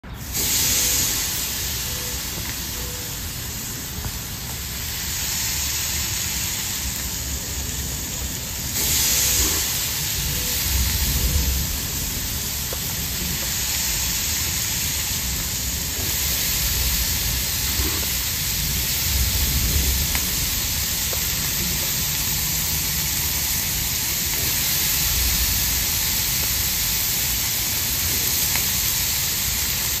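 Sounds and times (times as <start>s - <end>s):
meat sizzling on grill: 0.1s - 30.0s
low rumbles: 6.7s - 26.2s.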